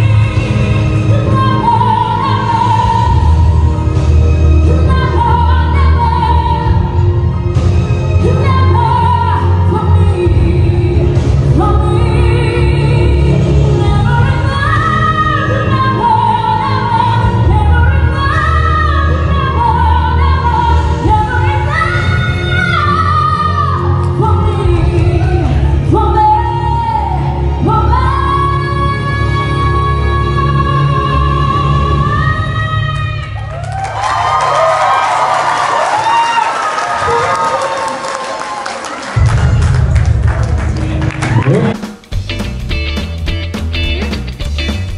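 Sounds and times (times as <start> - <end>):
woman singing into microphone: 0.0 - 3.5, 4.7 - 7.1, 8.2 - 33.5
musical accompaniment through speakers: 0.0 - 36.2, 39.1 - 44.9.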